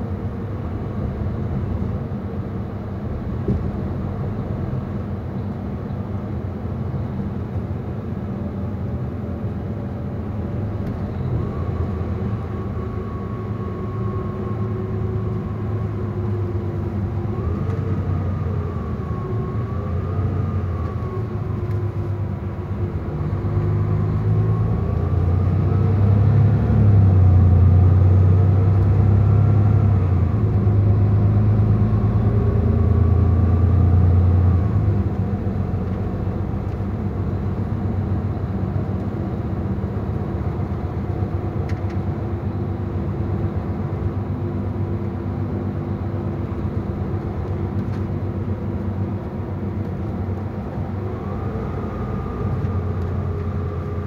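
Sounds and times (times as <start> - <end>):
diesel coach engine drone: 0.0 - 54.0.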